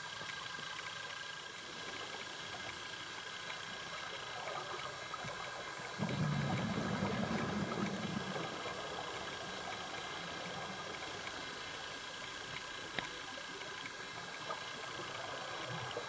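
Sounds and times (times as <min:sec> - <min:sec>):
underwater hiss: 0:01.6 - 0:16.0
exhaust bubbles bubbling: 0:01.8 - 0:16.0.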